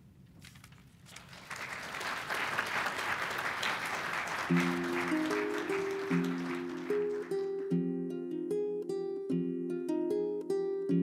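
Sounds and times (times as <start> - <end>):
audience applauding: 1.1 - 7.7.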